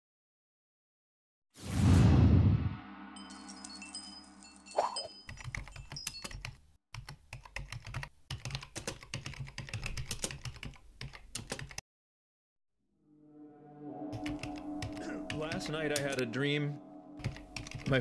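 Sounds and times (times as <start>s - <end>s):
intro music: 13.0s - 18.0s.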